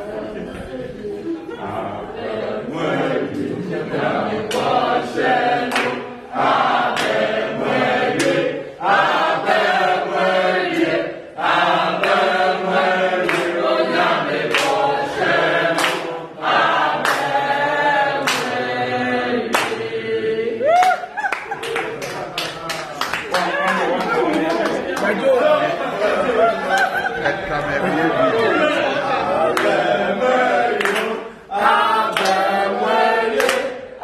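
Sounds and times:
group singing a chant: 0:00.0 - 0:21.0, 0:24.1 - 0:34.0
sharp hand claps: 0:05.7 - 0:06.0, 0:13.2 - 0:13.5, 0:15.8 - 0:16.1, 0:20.7 - 0:25.1.

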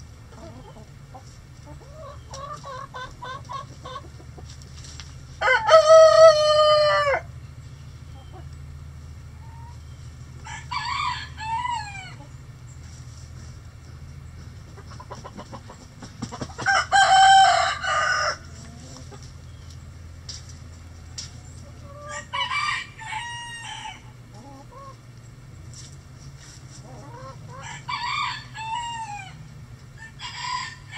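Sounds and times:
hens clucking softly: 0:00.1 - 0:10.5, 0:11.4 - 0:17.1, 0:17.9 - 0:19.9, 0:20.9 - 0:22.4, 0:23.7 - 0:25.4, 0:26.1 - 0:30.3
roosters crowing: 0:05.3 - 0:07.4, 0:09.3 - 0:12.5, 0:14.7 - 0:19.2, 0:20.8 - 0:25.0, 0:26.8 - 0:30.9.

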